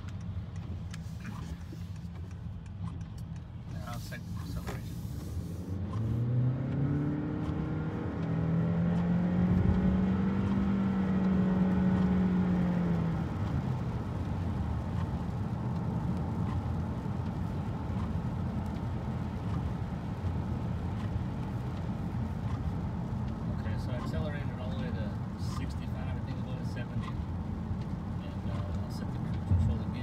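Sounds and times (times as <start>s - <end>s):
car engine accelerating: 0.0s - 30.0s
tyres hissing on wet road: 3.7s - 6.2s.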